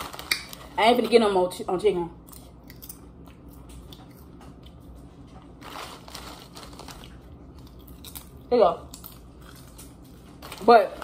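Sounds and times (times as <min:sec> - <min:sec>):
chips being chewed: 0:00.0 - 0:00.8, 0:02.2 - 0:11.0
chip bag rustling: 0:00.0 - 0:01.2, 0:05.5 - 0:08.4, 0:09.1 - 0:11.0.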